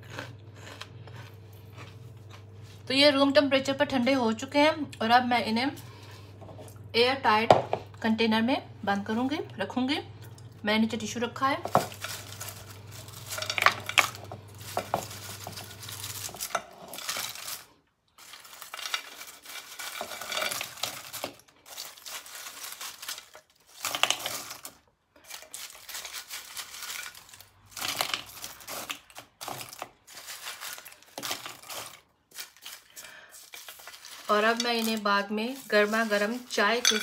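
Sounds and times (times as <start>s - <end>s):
crisp fried snacks clattering: 11.7s - 37.0s.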